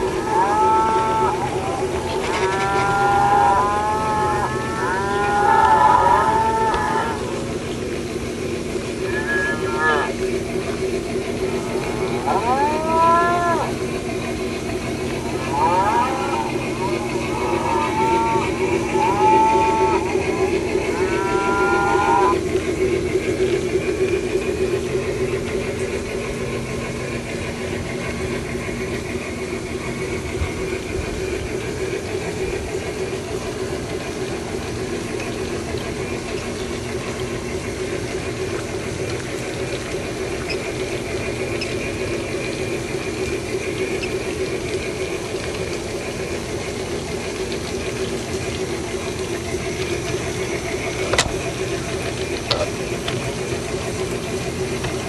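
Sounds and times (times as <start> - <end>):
model train motor drone: 0.0 - 40.9.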